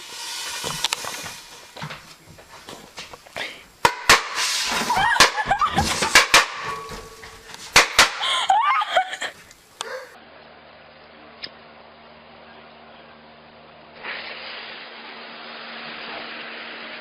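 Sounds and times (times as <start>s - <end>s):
firecrackers banging: 0.0s - 3.2s, 3.8s - 9.3s
faint steady hum: 0.0s - 14.0s
people shouting and laughing: 4.8s - 6.0s, 8.2s - 10.2s.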